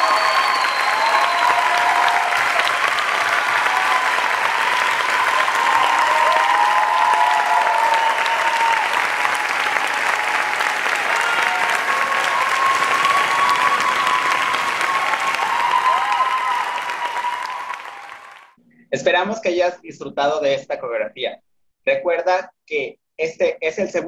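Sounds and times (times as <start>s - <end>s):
audience applauding: 0.0s - 18.6s.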